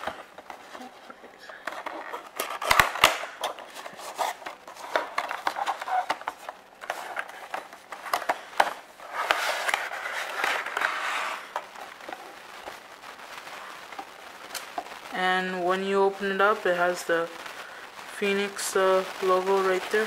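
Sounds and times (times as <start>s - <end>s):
cardboard rubbing and sliding: 1.8s - 12.2s.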